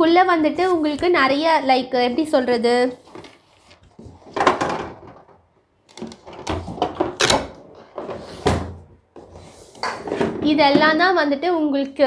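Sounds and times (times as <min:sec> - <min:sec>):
packaging rustling and knocking: 0:03.2 - 0:09.3.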